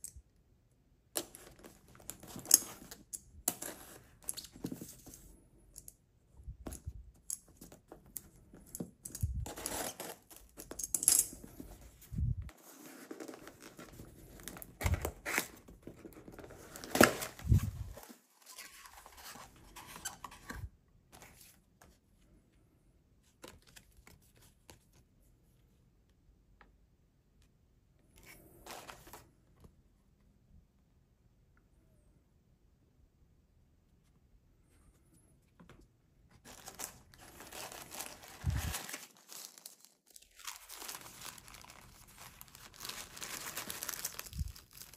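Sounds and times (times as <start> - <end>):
faint paper rustling: 28.1 - 29.7, 34.0 - 44.9.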